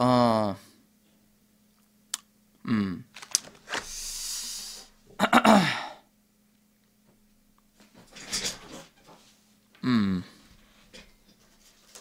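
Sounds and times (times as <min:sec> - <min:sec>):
man groaning: 0:00.0 - 0:00.6, 0:02.6 - 0:03.1, 0:05.2 - 0:06.0, 0:09.8 - 0:10.4
man grunting: 0:00.0 - 0:00.6, 0:02.6 - 0:03.1, 0:05.2 - 0:06.0, 0:09.8 - 0:10.4
long breathy hiss: 0:03.8 - 0:05.0.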